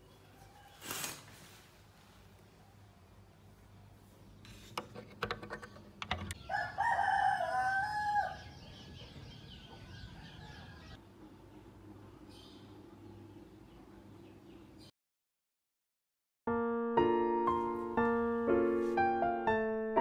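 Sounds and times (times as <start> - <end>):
rooster crowing: 6.4 - 8.6.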